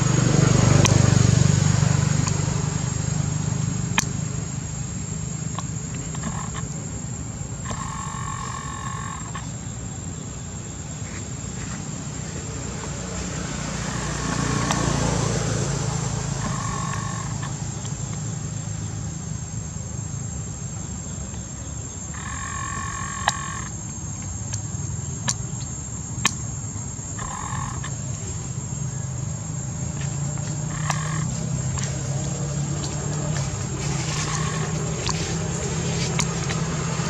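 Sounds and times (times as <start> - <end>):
steady low hum: 0.0 - 37.0
sharp clicks: 22.2 - 26.4, 30.4 - 32.0.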